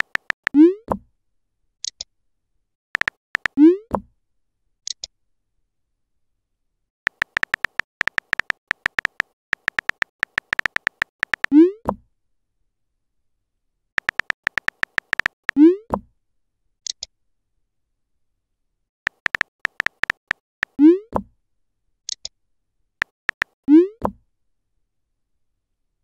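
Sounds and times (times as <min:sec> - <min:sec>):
keyboard tap clicks: 0:00.0 - 0:00.5, 0:03.0 - 0:03.5, 0:07.1 - 0:11.5, 0:14.0 - 0:15.6, 0:19.1 - 0:20.4, 0:23.0 - 0:23.6.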